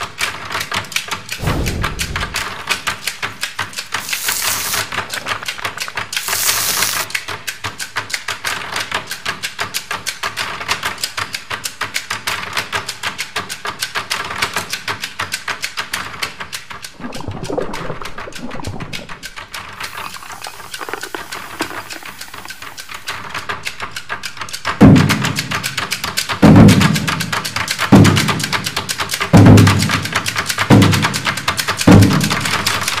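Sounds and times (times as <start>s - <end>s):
fast ticking percussion: 0.9s - 33.0s
short hissing bursts: 2.3s - 7.1s, 19.8s - 23.4s.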